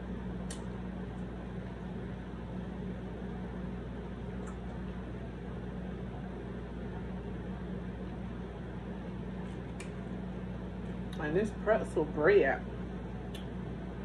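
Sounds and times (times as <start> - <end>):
background hum and hiss: 0.0 - 14.0.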